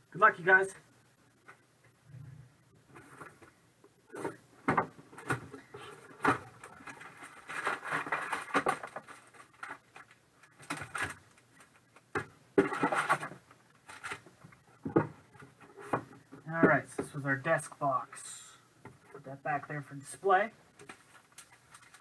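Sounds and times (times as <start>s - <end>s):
packaging rustling and sliding: 5.8s - 10.0s.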